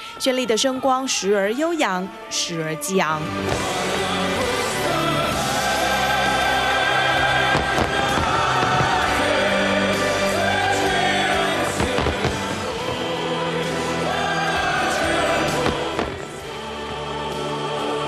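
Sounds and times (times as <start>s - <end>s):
slow music with long notes: 0.0s - 18.0s
fireworks bangs: 3.4s - 16.6s.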